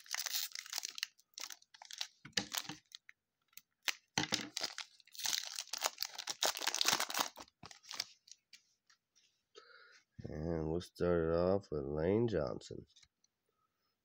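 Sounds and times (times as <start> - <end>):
foil wrapper tearing: 0.0 - 3.0, 3.8 - 8.4
foil wrapper crinkling: 0.0 - 8.6.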